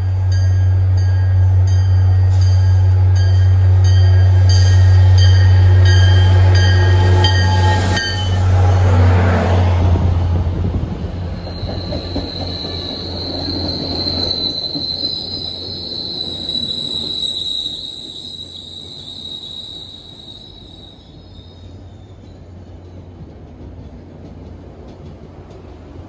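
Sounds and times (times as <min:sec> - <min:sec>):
locomotive bell ringing: 0:00.0 - 0:08.6
diesel locomotive engine drone: 0:00.0 - 0:26.0
train wheel squeal: 0:02.2 - 0:08.7, 0:11.1 - 0:23.4.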